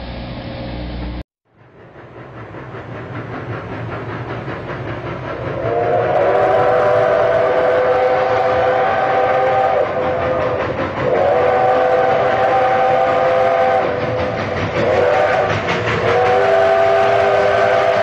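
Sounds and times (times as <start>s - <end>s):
train running rhythmic beat: 1.4s - 18.0s
steam locomotive chime whistle: 5.6s - 18.0s.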